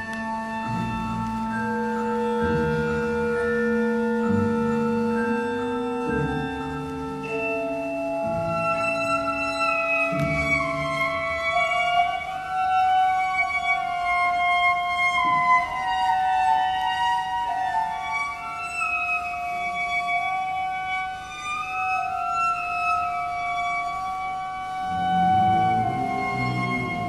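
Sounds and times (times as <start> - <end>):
slow cello music: 0.0 - 27.0.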